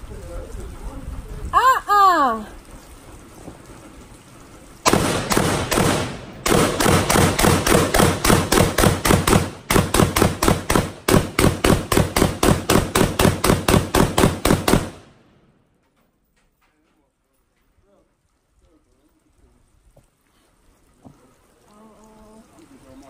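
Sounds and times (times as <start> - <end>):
rapid handgun shots: 4.8 - 15.3.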